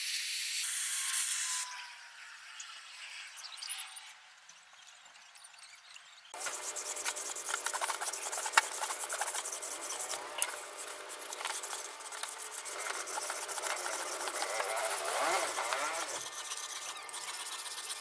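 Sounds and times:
blade scraping on whetstone: 6.4s - 18.0s.

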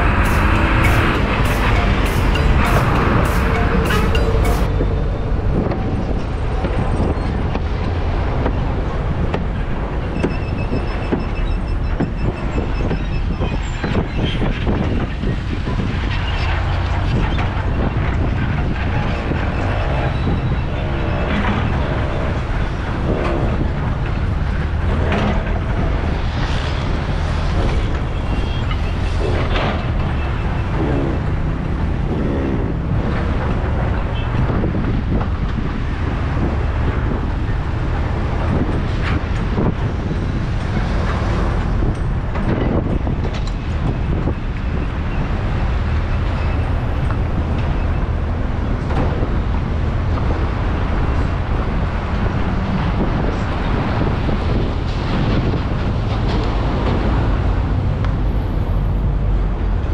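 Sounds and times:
wavering engine sounds: 0.0s - 7.1s, 18.5s - 34.2s
road and engine rumble: 0.0s - 59.9s
vehicles passing: 0.0s - 59.9s.

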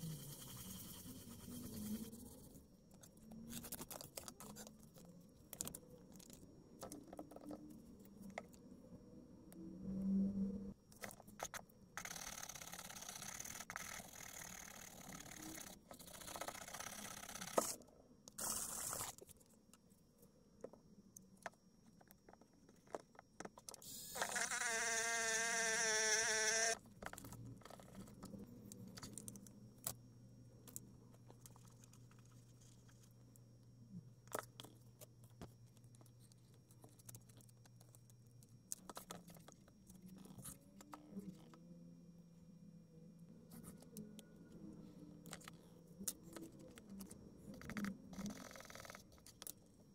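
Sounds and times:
rotary tool motor whine: 0.0s - 2.5s, 12.0s - 17.8s, 23.8s - 26.8s.

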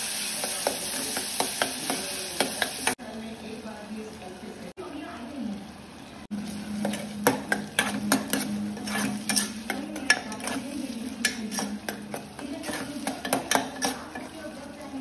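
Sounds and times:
food sizzling in oil: 0.0s - 15.0s
spatula scraping a pan: 6.4s - 14.4s.

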